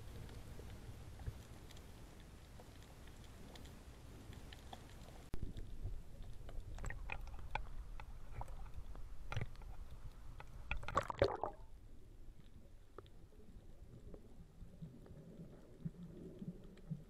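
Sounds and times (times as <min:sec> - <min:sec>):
seawater sloshing and gurgling: 0:10.7 - 0:11.7
water splashing: 0:10.7 - 0:11.7.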